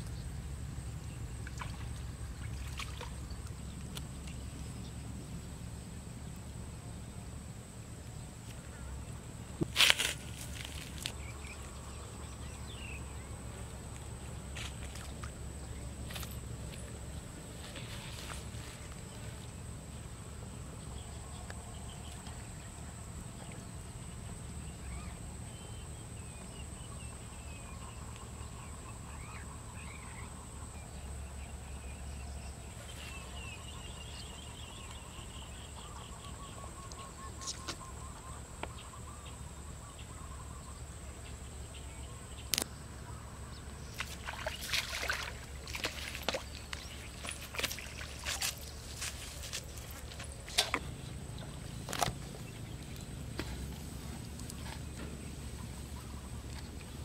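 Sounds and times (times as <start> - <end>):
faint bird chirps: 32.4 - 53.5
fish splashing at surface: 44.0 - 48.6.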